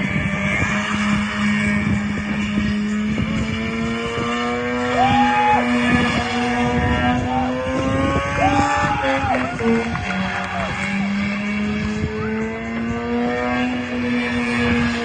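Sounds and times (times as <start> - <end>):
rotary engine revving high: 0.0 - 15.0
tyres spinning on asphalt: 0.0 - 15.0.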